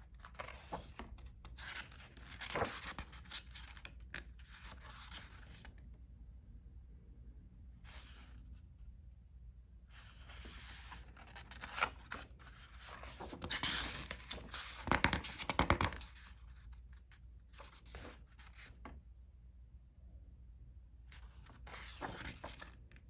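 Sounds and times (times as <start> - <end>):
paper pages rustling: 0.2 - 5.7, 10.0 - 19.0, 21.2 - 22.8
page flapping: 0.3 - 4.0, 10.3 - 16.2, 21.4 - 22.8.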